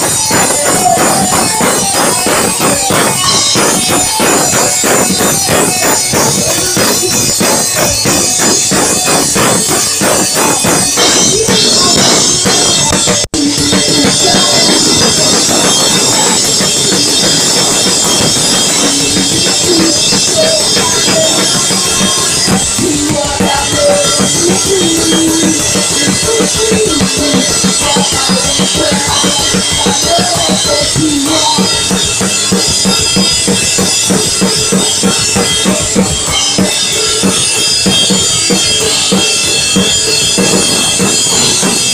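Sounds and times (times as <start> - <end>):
drum kit beat: 0.0 - 41.9
electric guitars: 0.0 - 41.9
pop-punk band playing live: 0.0 - 41.9.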